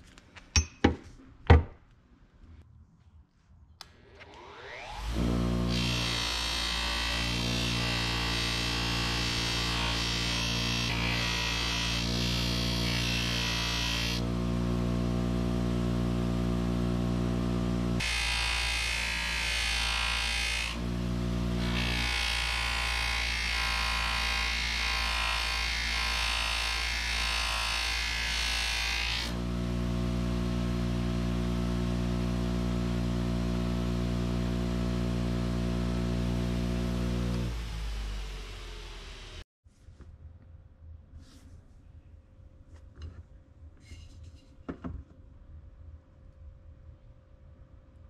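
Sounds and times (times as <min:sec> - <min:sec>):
bench grinder motor hum: 0:04.3 - 0:39.4.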